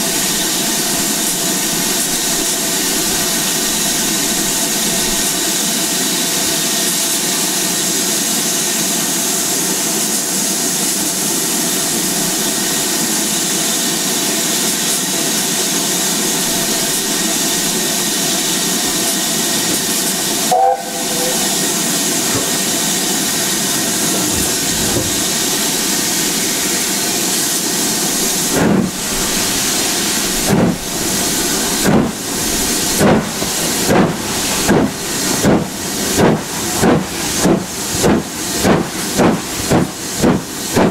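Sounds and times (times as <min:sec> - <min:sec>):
steam locomotive hissing steam: 0:00.0 - 0:40.9
locomotive exhaust beats: 0:16.2 - 0:27.3, 0:27.9 - 0:40.9
steam whistle: 0:20.4 - 0:21.9.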